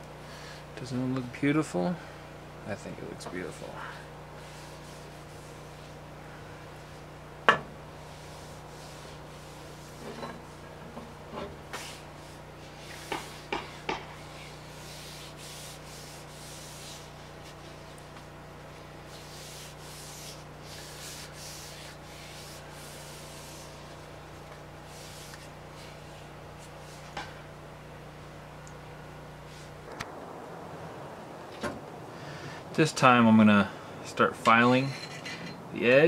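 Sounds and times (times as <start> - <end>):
hand rubbing wooden handle: 4.4 - 6.1, 8.0 - 27.2.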